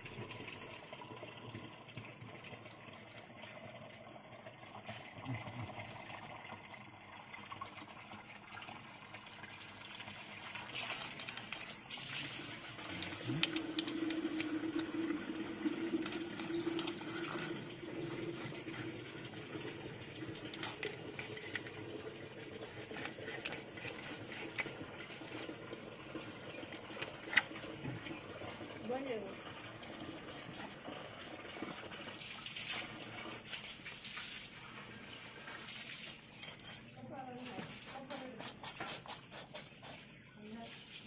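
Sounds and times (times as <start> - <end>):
knife scraping fish: 22.6 - 25.5, 36.4 - 36.9, 37.6 - 40.1.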